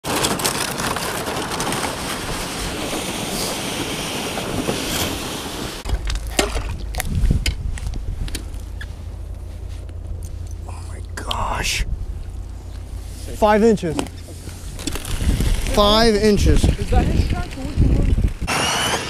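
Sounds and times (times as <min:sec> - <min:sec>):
sled scraping over snow: 0:00.0 - 0:05.9, 0:12.1 - 0:19.0
low rumble: 0:00.9 - 0:18.5.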